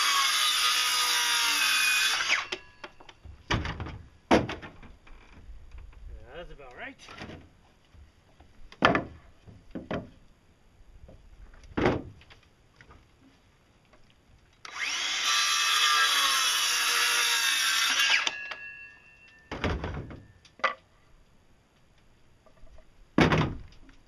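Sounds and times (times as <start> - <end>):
electric saw cutting wood: 0.0 - 2.7, 14.6 - 18.6
wood knocking: 8.7 - 10.2.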